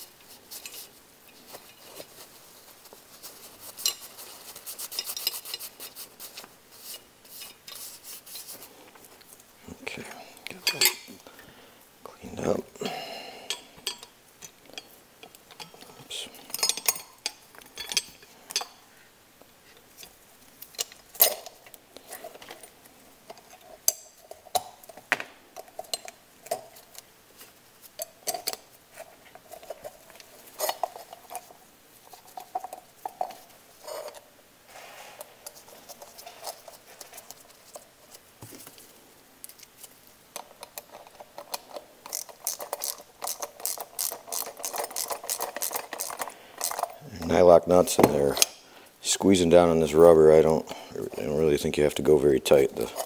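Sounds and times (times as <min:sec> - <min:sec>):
metal parts clinking and knocking: 0:16.5 - 0:18.8, 0:40.4 - 0:47.0.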